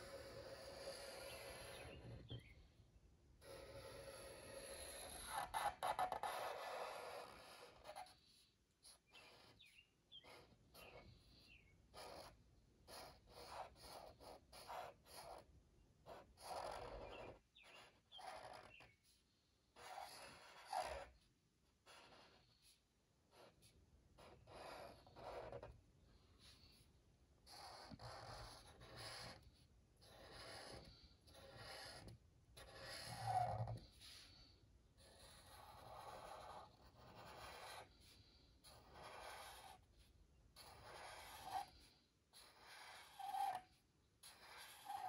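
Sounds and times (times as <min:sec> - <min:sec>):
marker scratching on paper: 0:00.0 - 0:02.6, 0:03.4 - 0:45.0
felt tip squeaks: 0:17.1 - 0:19.0.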